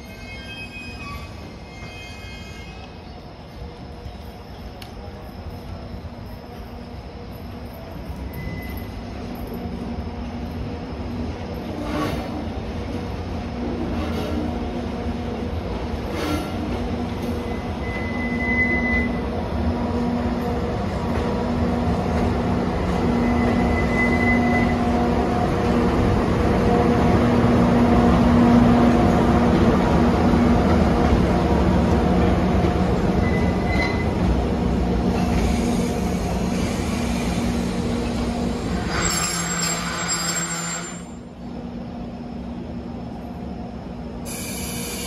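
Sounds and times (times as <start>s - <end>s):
train wheels squealing: 0.0s - 9.8s, 16.0s - 19.4s, 22.9s - 25.0s, 33.2s - 34.3s, 35.1s - 41.3s, 44.3s - 45.0s
electric train passing with hum: 0.0s - 45.0s.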